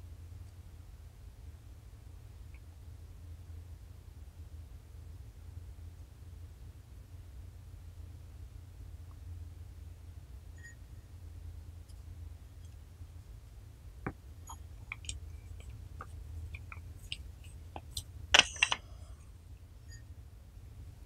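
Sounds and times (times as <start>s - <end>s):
faint low hum: 0.0s - 21.0s.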